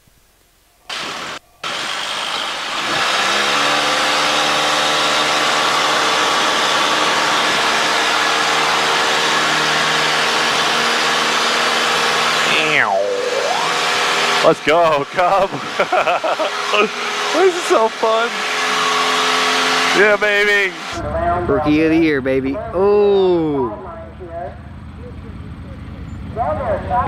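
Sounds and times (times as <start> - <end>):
light aircraft engine at full throttle: 0.9 - 27.0
ground noise: 12.0 - 18.3.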